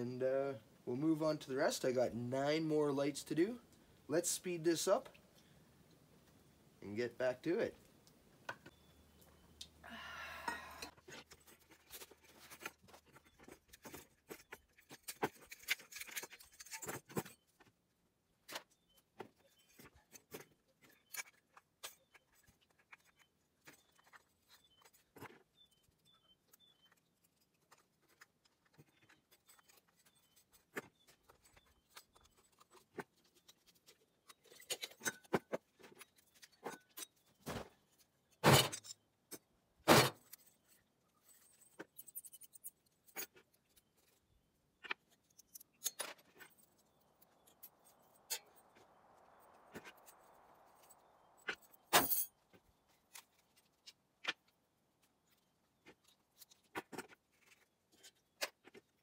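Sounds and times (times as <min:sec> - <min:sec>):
tools and metal parts clinking: 0:10.8 - 0:17.7, 0:18.5 - 0:44.2, 0:44.8 - 0:54.5.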